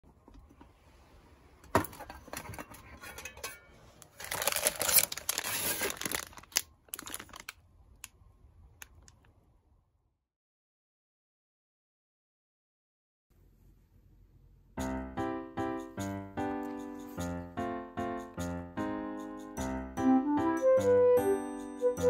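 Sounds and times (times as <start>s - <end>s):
crinkling and rustling handling: 0.1s - 8.1s.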